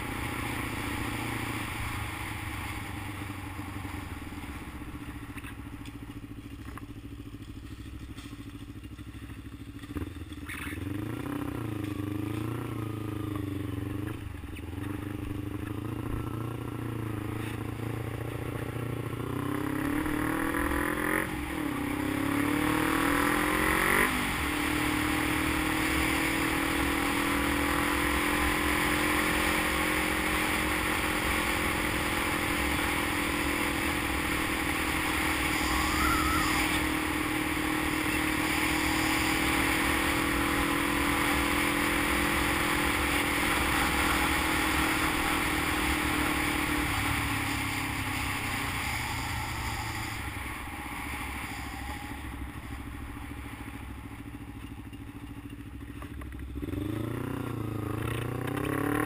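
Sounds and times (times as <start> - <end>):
motorcycle engine accelerating: 0.0 - 59.0
wind hiss: 46.9 - 53.2.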